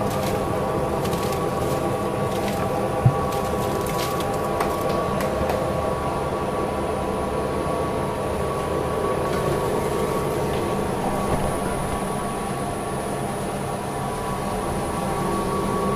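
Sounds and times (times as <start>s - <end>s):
dewatering machine humming: 0.0s - 15.9s.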